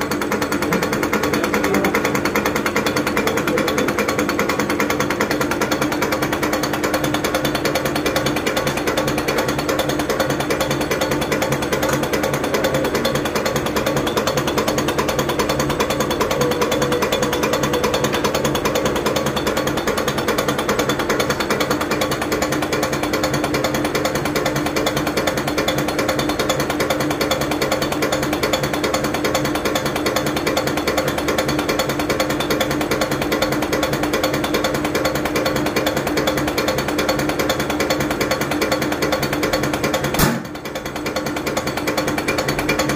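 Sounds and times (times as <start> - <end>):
injector nozzles chattering: 0.0 - 7.4, 8.1 - 21.5
steady machine hum: 0.0 - 42.9
sharp click: 40.2 - 40.6.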